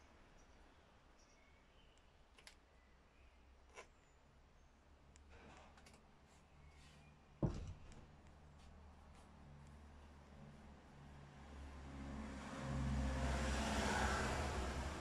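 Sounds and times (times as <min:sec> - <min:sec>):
chainsaw set down with thud: 0:07.4 - 0:08.0.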